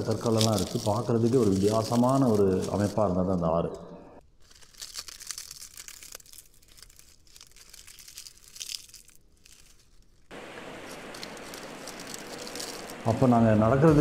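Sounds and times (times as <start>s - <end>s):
footsteps on stones: 0.0s - 3.2s, 4.4s - 14.0s
steady hiss: 10.3s - 14.0s.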